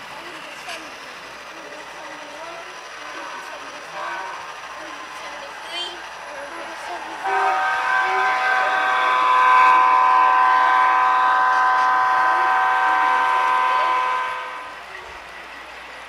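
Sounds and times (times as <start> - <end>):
model train horn blast: 3.9 - 4.6, 7.2 - 14.8.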